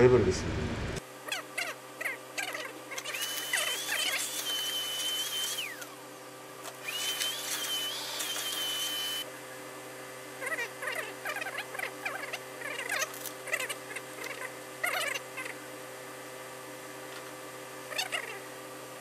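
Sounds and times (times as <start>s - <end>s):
vacuum cleaner running: 3.0s - 10.3s
shears snipping fur: 12.9s - 13.6s.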